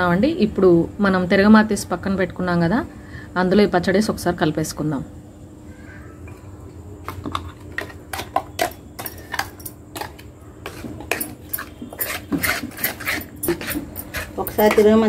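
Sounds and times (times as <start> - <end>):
metal spoon scraping in pan: 8.1 - 15.0.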